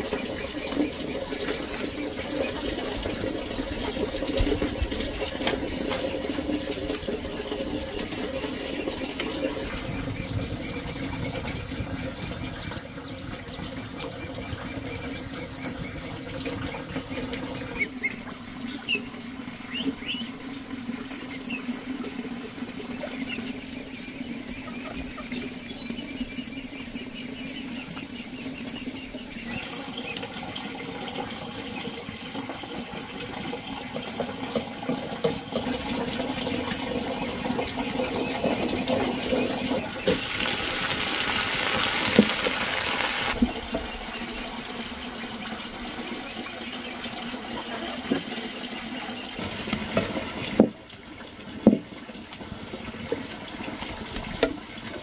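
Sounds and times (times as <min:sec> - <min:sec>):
meat sizzling on a grill: 0:40.0 - 0:43.4
vegetables sizzling in a wok: 0:40.0 - 0:44.0.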